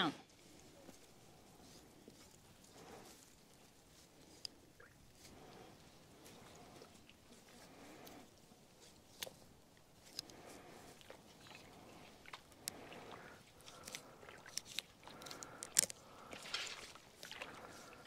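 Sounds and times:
faint clicks and crunches: 4.1s - 18.0s.

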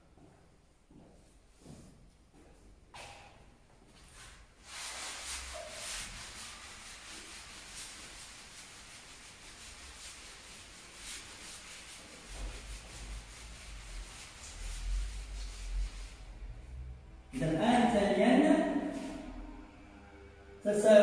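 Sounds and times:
eraser wiping a whiteboard: 4.0s - 16.8s.

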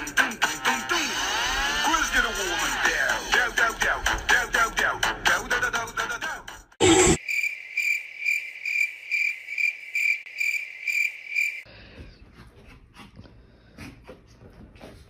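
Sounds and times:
crickets chirping: 7.2s - 11.7s.

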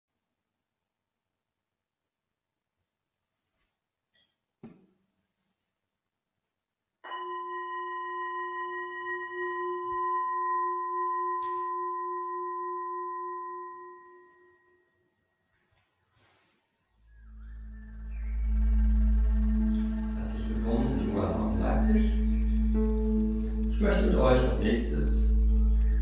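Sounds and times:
singing bowl ringing: 7.0s - 15.2s, 17.4s - 26.0s.

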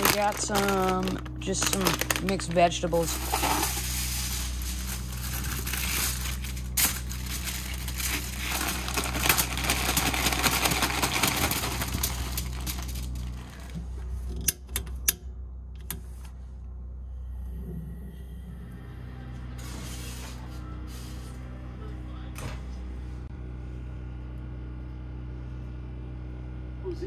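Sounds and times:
aluminium foil crinkling: 0.0s - 13.8s
frozen vegetables rattling: 0.0s - 13.8s.

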